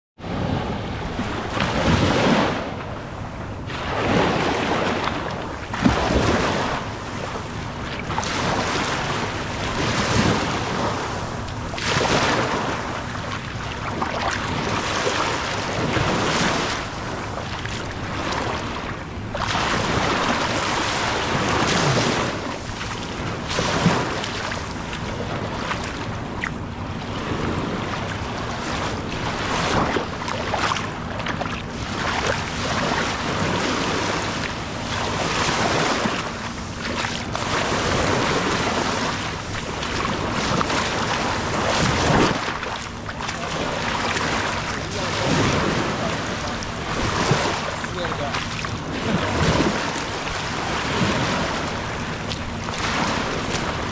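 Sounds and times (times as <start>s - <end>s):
small waves breaking on pebbles: 31.8s - 51.7s.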